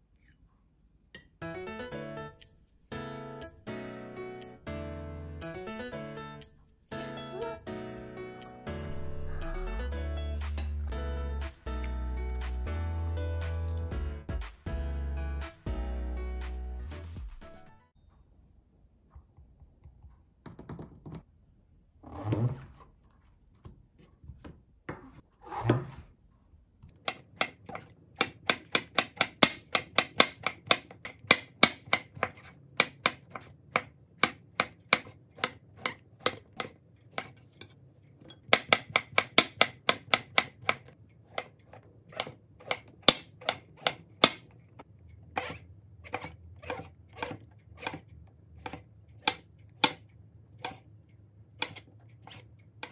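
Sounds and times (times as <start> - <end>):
knife slicing on wooden board: 45.4 - 48.0, 50.6 - 50.8.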